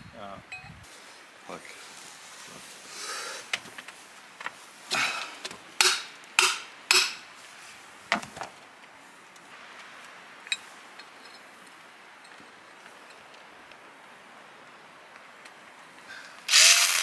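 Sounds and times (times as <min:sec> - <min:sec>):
hammer strikes: 0:05.8 - 0:07.2.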